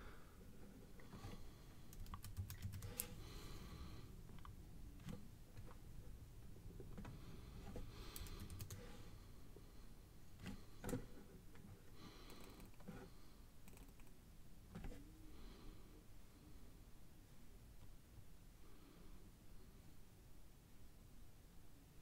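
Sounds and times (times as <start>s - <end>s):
keyboard and mouse clicking: 1.9s - 3.2s, 8.1s - 8.8s, 13.6s - 14.2s.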